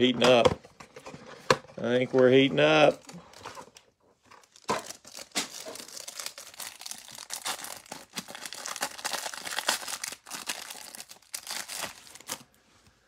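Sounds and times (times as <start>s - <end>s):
plastic wrapper crinkling and tearing: 2.8s - 12.6s.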